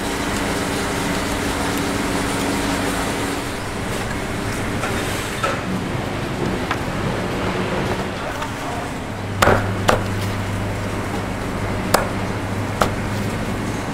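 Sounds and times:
mechanical background noise: 0.0s - 13.9s
low hum: 3.2s - 13.9s.

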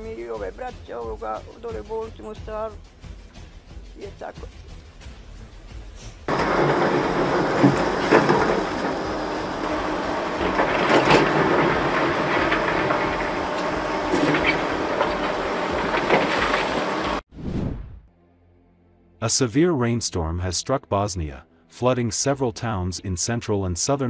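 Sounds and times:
excavator engine running: 6.3s - 17.3s.

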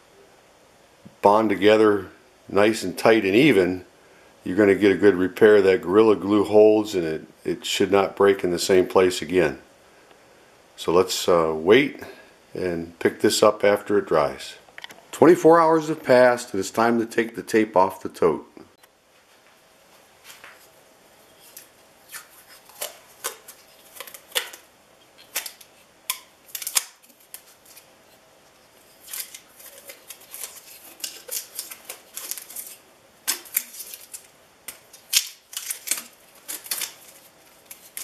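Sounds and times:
tape peeling with tearing crackles: 21.3s - 38.0s.

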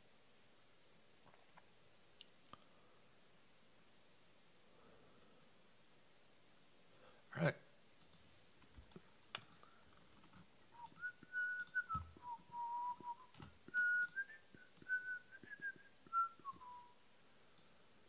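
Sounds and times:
faint clicks and taps: 8.0s - 12.3s
person whistling a tune: 10.8s - 17.0s.

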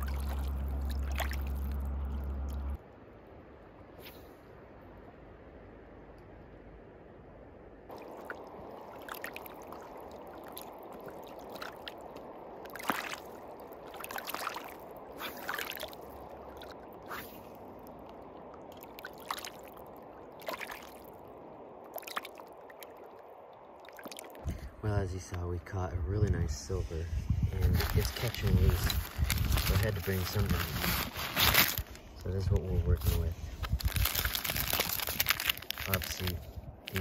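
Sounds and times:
small water splashes: 0.0s - 2.7s, 7.9s - 24.7s, 33.8s - 37.0s
river water flowing over rocks: 7.9s - 24.4s.

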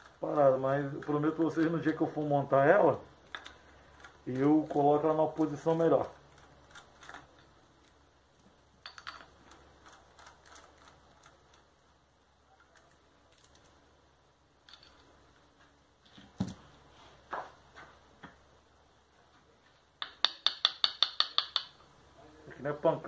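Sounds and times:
hand tool tapping metal: 20.0s - 21.8s.

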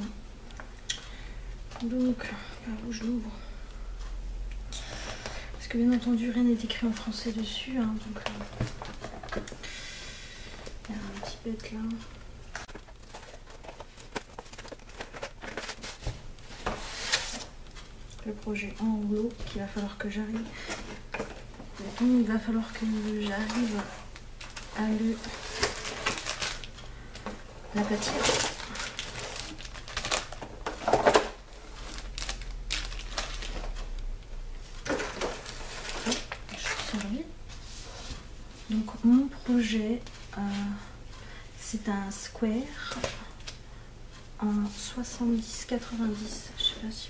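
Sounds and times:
cardboard packaging rustling: 8.1s - 9.6s, 12.5s - 17.8s, 20.4s - 34.0s, 34.8s - 37.2s
plastic wrap crinkling and tearing: 22.9s - 26.8s, 27.7s - 34.0s, 34.8s - 37.2s.

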